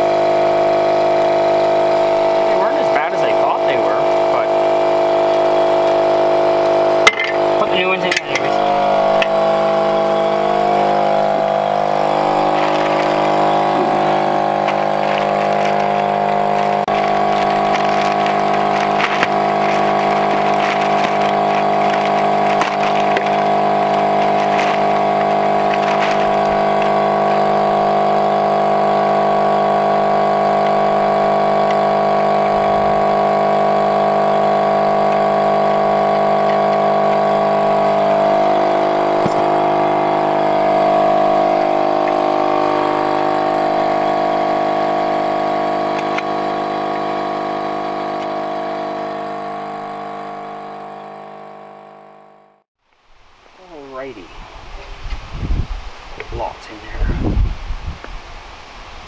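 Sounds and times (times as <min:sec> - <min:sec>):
motor humming: 0:00.0 - 0:52.6
plastic bag crackling: 0:12.0 - 0:28.0.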